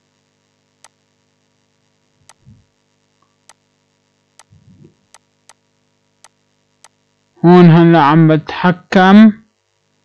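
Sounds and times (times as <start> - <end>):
low electrical hum: 0.0 - 10.0
mouse clicks: 4.4 - 5.6.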